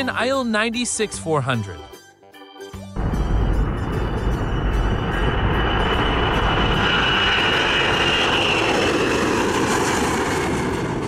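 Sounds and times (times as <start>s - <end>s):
jet engine roar with fan whine: 3.0s - 11.0s.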